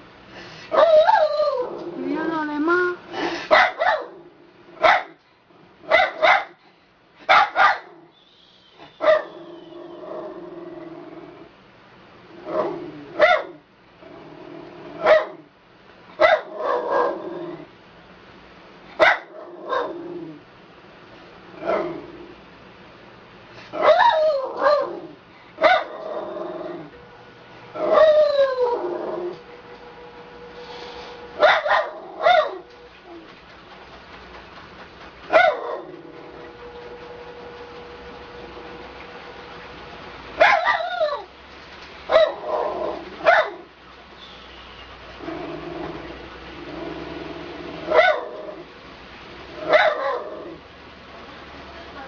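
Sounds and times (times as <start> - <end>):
dog barking and yipping: 3.5 - 4.2, 4.8 - 5.2, 5.9 - 6.6, 7.3 - 8.0, 8.9 - 9.4, 12.6 - 13.6, 15.0 - 15.4, 16.2 - 17.2, 19.0 - 20.0, 23.8 - 25.0, 25.6 - 26.1, 27.8 - 28.8, 31.4 - 33.2, 35.2 - 36.6, 40.4 - 41.3, 42.1 - 43.7, 47.9 - 48.4, 49.6 - 50.4
dog howling: 27.7 - 29.5.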